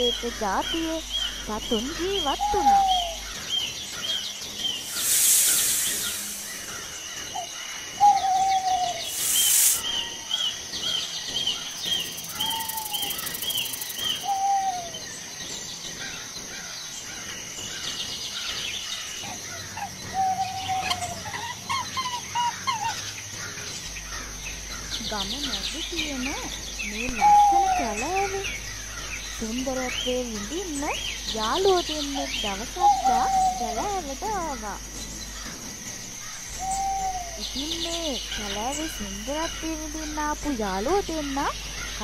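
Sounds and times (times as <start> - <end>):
high bird chirps: 0.0 - 15.2, 17.7 - 42.0
falling whistled bird note: 4.8 - 6.9, 8.2 - 10.2
short bursts of hiss: 4.8 - 7.0, 9.0 - 9.9
high-pitched whine: 4.8 - 7.1, 8.2 - 10.3.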